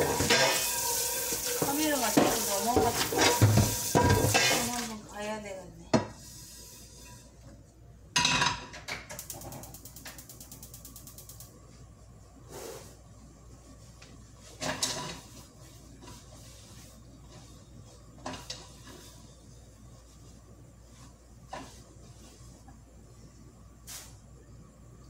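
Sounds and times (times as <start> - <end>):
pans and utensils clattering: 0.0 - 4.9, 8.2 - 9.6, 14.6 - 15.4, 18.2 - 19.2.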